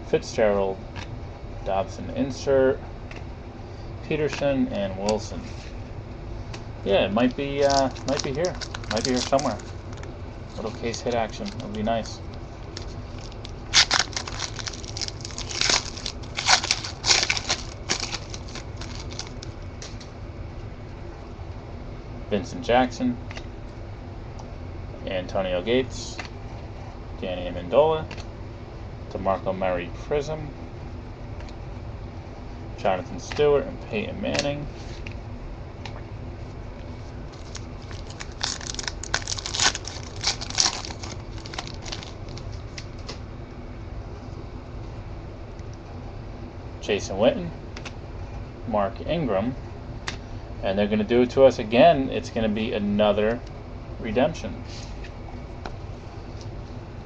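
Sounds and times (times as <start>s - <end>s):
foil wrapper tearing: 7.6s - 20.0s, 37.3s - 42.9s.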